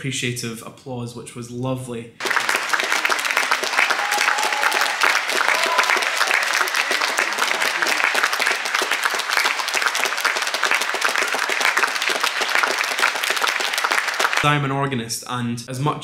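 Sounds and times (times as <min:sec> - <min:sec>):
audience applauding: 0:02.2 - 0:14.7.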